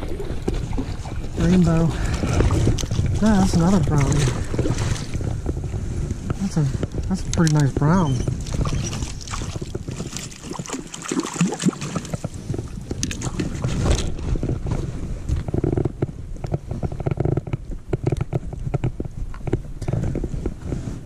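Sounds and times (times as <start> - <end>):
wind rumble on microphone: 0.0 - 21.0
crackling handling noise: 5.1 - 10.4.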